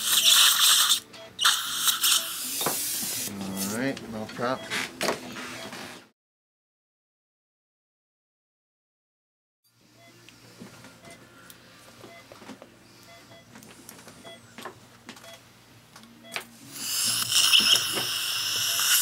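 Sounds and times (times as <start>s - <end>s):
dental drill whirring: 0.0s - 3.3s, 16.7s - 19.0s.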